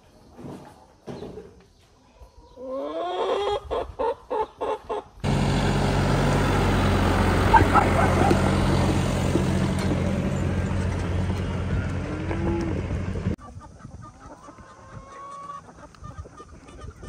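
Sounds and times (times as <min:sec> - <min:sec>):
chickens clucking: 0:00.4 - 0:05.3, 0:13.3 - 0:17.0
tractor diesel engine idling: 0:05.2 - 0:13.4.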